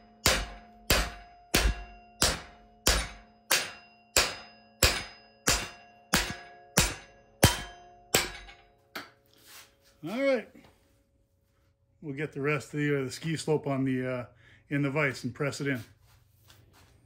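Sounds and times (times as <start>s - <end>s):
hammer striking steel bar: 0.0s - 9.2s.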